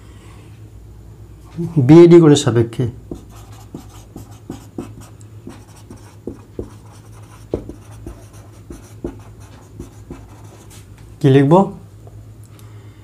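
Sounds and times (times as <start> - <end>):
low steady hum: 0.0 - 13.0
pen scratching on paper: 3.1 - 10.8.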